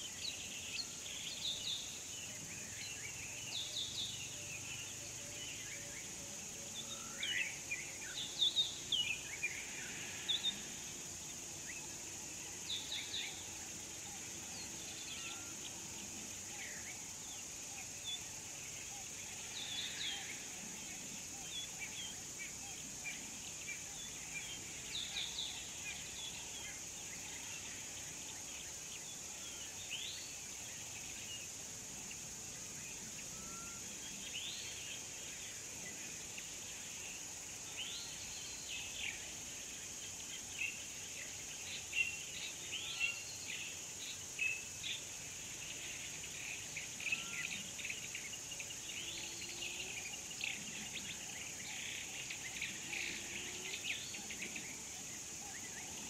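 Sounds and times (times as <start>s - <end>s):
insects droning: 0.0s - 56.0s.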